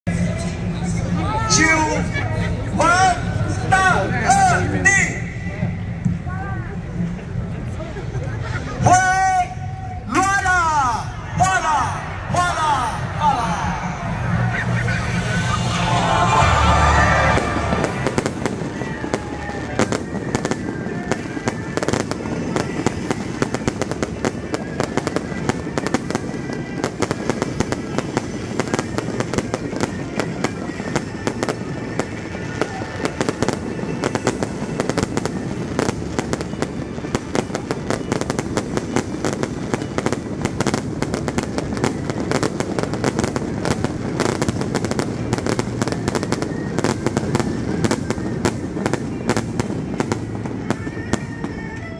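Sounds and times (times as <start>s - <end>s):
fireworks bursting: 11.2s - 51.9s.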